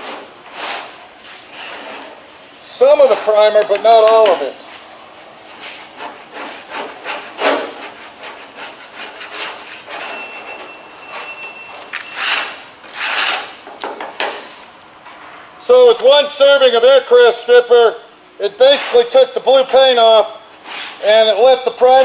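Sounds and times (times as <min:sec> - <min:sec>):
scraper blade scraping paint: 0:00.0 - 0:02.3, 0:05.5 - 0:13.6, 0:18.6 - 0:19.9, 0:20.6 - 0:22.0.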